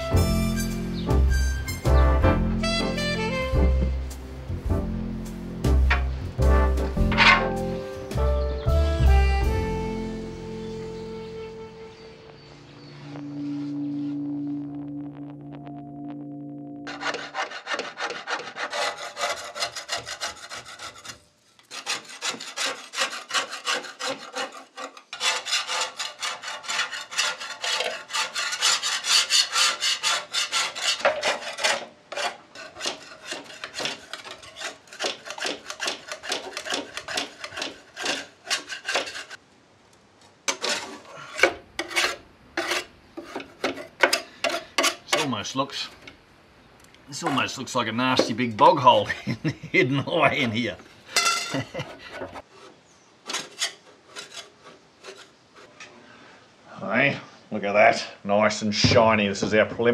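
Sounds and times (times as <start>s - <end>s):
wire brush scraping metal: 6.8s - 7.6s, 16.9s - 39.4s, 40.5s - 45.9s, 51.2s - 55.9s.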